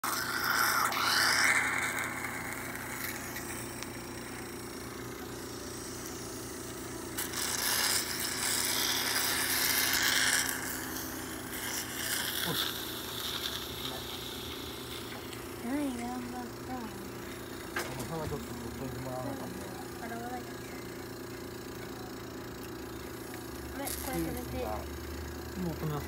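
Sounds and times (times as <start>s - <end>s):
dental equipment hissing: 0.0s - 20.7s
low machine hum: 0.0s - 26.0s.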